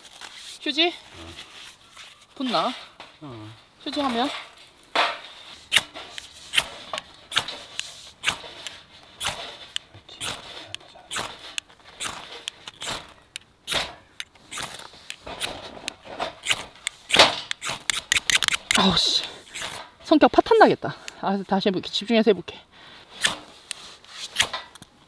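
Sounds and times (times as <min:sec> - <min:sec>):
ferro rod scraping: 0:04.0 - 0:20.1, 0:23.0 - 0:24.8.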